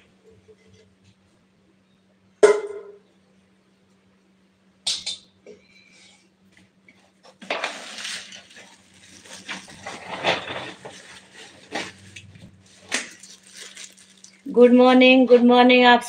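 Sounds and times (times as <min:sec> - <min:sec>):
kitchen utensils clattering: 0:07.4 - 0:12.3.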